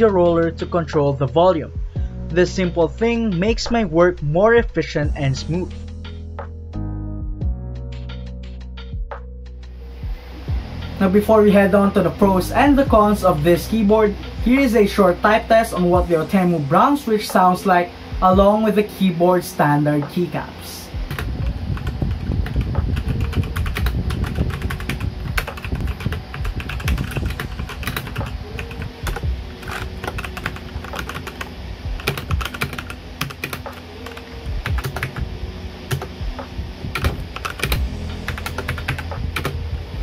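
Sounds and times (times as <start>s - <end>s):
mechanical keyboard typing: 21.1s - 35.2s, 35.9s - 36.1s, 36.9s - 39.6s.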